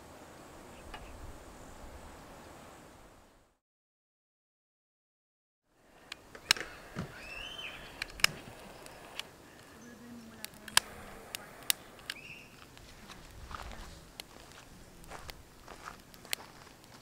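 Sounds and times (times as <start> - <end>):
birds chirping faintly: 5.8 - 17.0
kindling crackling in fire: 5.8 - 17.0.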